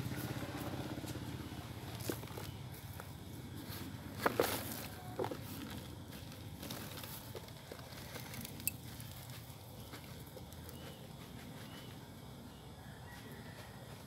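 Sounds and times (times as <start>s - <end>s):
soil crackling and pattering: 1.9s - 12.0s.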